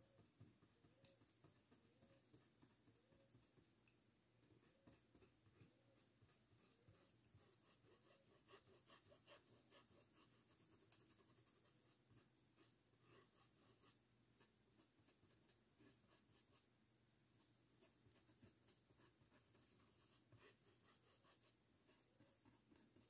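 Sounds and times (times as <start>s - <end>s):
paintbrush scratching on fabric: 4.6s - 16.7s, 17.4s - 23.0s.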